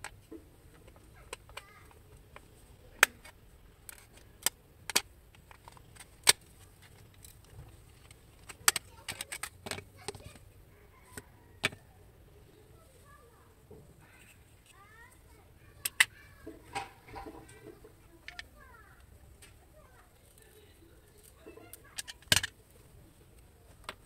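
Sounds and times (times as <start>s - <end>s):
plastic clips clicking: 0.0s - 10.4s, 15.8s - 16.1s, 21.2s - 22.6s.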